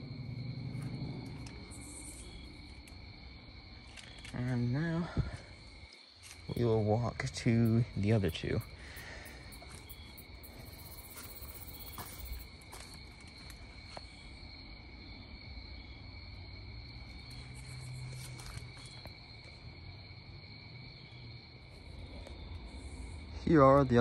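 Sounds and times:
crickets trilling: 0.0s - 24.0s
footsteps on grass and dry leaves: 9.6s - 14.1s, 17.6s - 19.2s.

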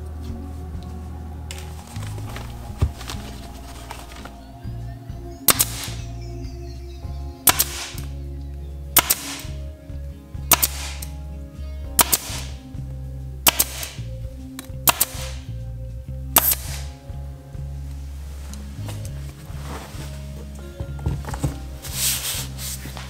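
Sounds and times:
power stapler snapping: 9.0s - 9.5s, 10.5s - 11.1s, 12.0s - 12.5s, 13.5s - 14.0s, 14.9s - 15.4s.

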